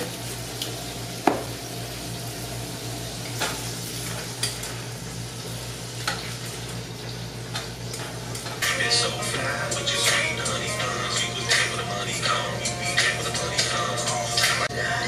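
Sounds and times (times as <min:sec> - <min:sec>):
broccoli sizzling in a pot: 0:00.0 - 0:08.7
steady low hum: 0:07.2 - 0:15.0.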